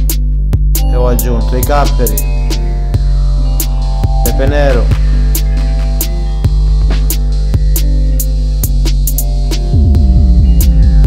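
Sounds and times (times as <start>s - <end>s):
background music: 0.0s - 11.0s
sliding bass line: 0.0s - 11.0s.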